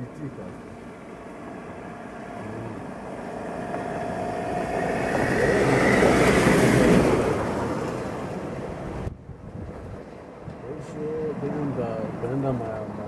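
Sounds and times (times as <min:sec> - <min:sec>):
vehicle driving past: 0:00.0 - 0:09.1.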